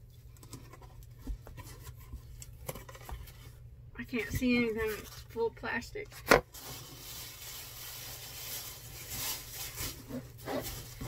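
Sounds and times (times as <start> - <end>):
plastic bag rustling: 6.4 - 11.0.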